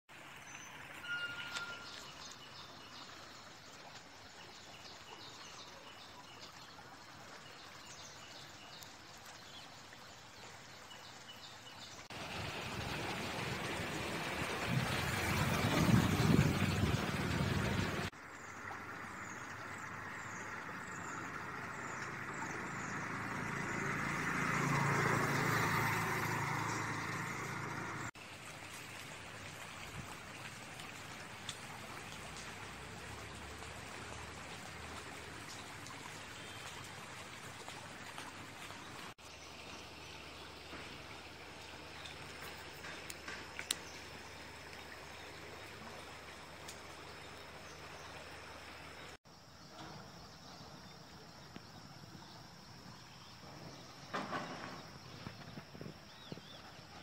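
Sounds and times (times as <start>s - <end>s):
stream flowing over rocks: 0.1s - 49.2s.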